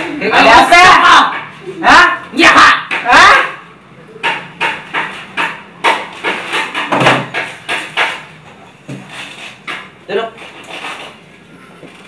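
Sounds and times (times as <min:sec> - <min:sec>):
sharp knocking: 0:04.2 - 0:08.4.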